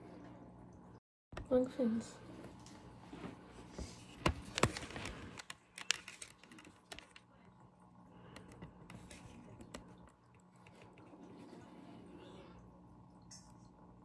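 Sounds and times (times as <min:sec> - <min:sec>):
faint low hum: 0:00.0 - 0:14.0
small clicks and taps: 0:08.3 - 0:11.0.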